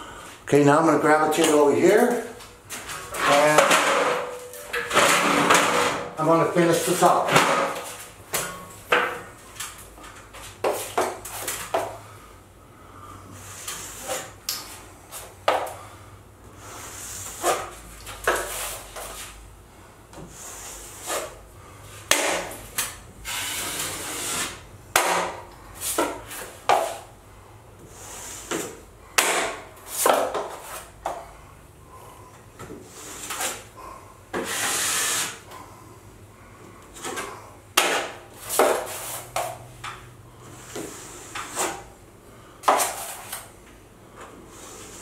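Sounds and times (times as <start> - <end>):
drywall knife scraping compound: 1.3 - 8.0, 13.4 - 14.4, 16.7 - 19.4, 20.3 - 21.4, 27.9 - 30.9, 37.0 - 39.6, 40.5 - 41.9, 42.6 - 43.5.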